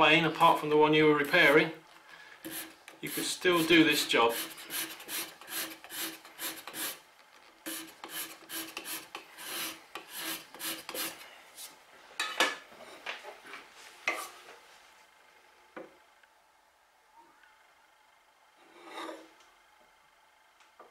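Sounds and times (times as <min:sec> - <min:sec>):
abrasive plate rasping on wood: 0:02.5 - 0:07.0, 0:07.6 - 0:11.2.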